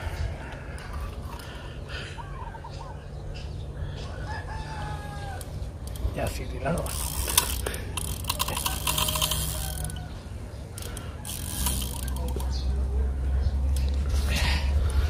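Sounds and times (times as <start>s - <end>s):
fishing reel clicking: 6.8s - 10.1s, 10.7s - 12.5s.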